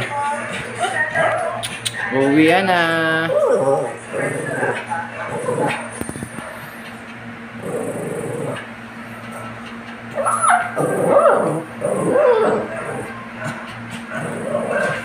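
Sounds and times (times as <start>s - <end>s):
dog whining: 3.2s - 4.8s, 9.7s - 15.0s.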